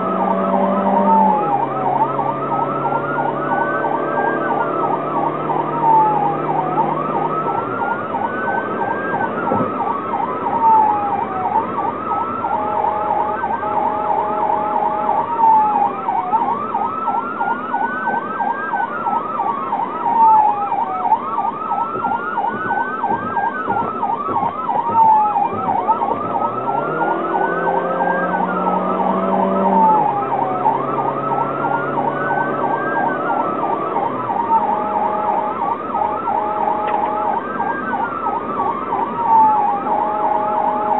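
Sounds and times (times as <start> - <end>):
electronic siren wailing: 0.0 - 40.9.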